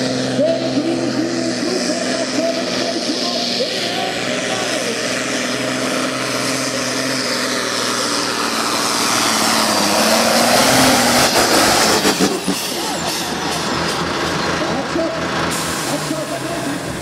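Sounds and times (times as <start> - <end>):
diesel tractor engine running hard: 0.0 - 17.0.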